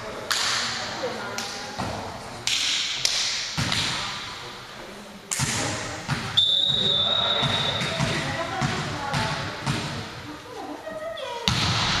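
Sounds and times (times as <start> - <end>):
players' voices: 0.0 - 12.0
volleyball hits echoing: 1.4 - 4.4, 5.3 - 10.2, 11.4 - 12.0.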